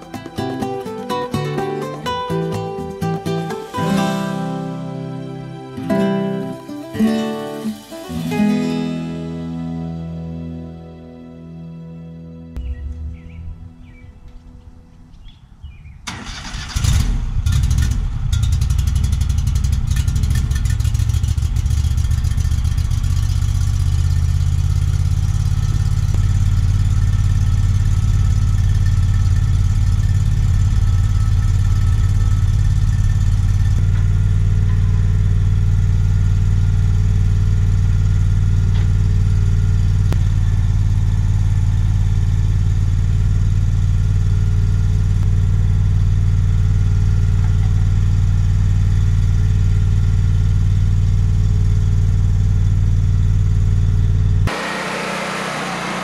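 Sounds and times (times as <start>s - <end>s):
sawmill engine idling: 18.0s - 56.0s.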